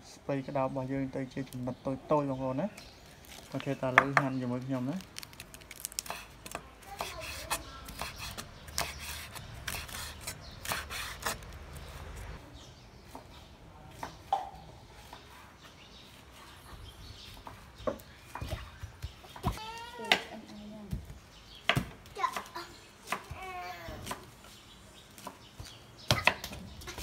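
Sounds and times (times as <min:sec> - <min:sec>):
knife slicing cabbage on board: 0:07.0 - 0:12.1.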